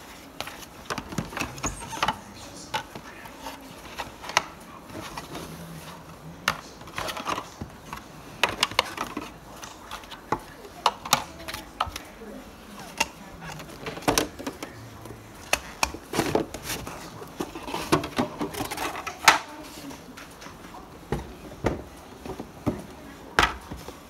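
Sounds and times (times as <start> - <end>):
plastic panels clacking: 12.8 - 19.5.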